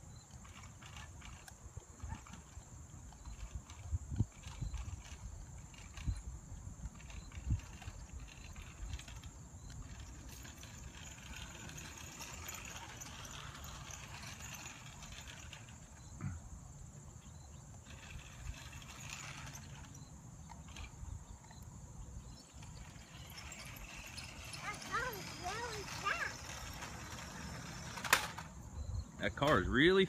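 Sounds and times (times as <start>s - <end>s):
toy car electric motor whir: 0.0s - 16.2s, 17.8s - 21.6s, 22.2s - 28.6s
wind rumble on microphone: 0.8s - 12.0s.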